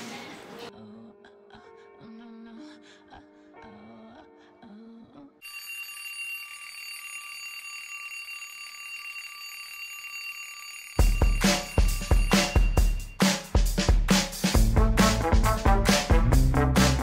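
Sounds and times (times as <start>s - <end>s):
alarm clock ringing: 5.4s - 13.2s
upbeat music with strong beat: 11.0s - 17.0s.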